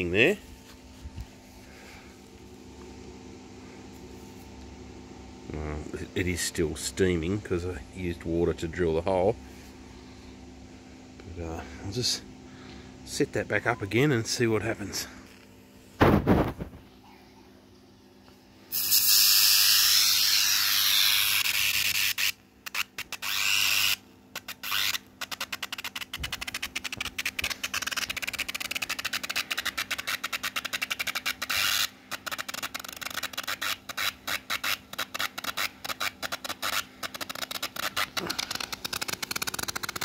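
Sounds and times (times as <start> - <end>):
electric arc hissing and crackling: 18.7 - 40.0.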